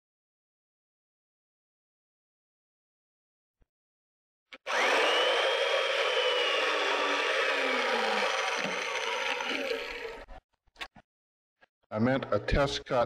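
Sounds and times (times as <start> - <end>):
chain mortiser cutting timber: 4.6 - 10.2.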